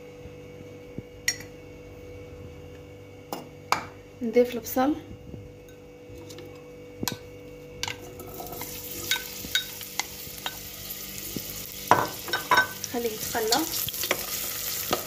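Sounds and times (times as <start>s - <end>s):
onions sizzling in hot oil: 8.2s - 15.0s.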